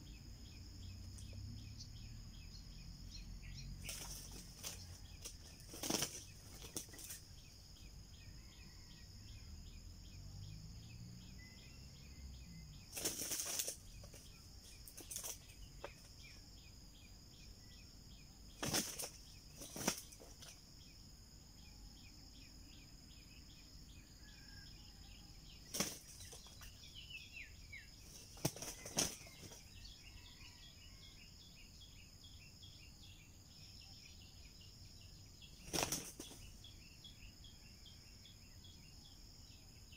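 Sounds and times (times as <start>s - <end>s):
insects droning: 0.0s - 39.9s
birds flapping wings: 3.8s - 7.2s, 12.9s - 14.2s, 14.8s - 16.0s, 18.6s - 20.6s, 25.7s - 26.6s, 28.1s - 29.6s, 35.6s - 36.4s.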